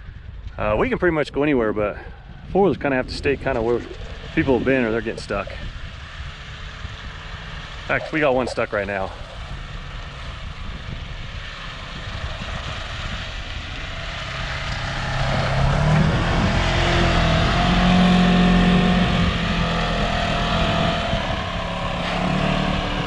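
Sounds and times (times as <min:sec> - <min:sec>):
tracked vehicle engine droning: 0:00.0 - 0:23.0.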